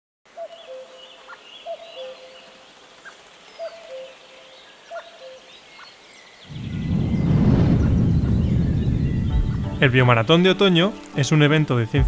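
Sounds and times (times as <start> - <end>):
high bird chirps: 6.5 - 9.8.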